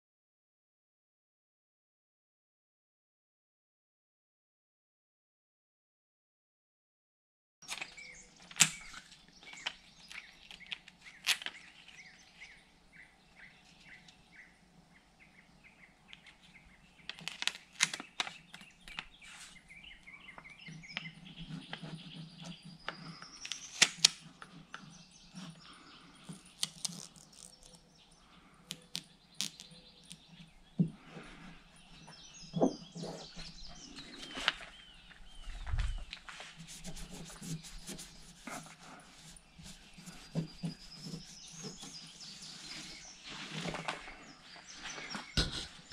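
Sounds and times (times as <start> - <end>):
rubbing: 35.8 - 44.2.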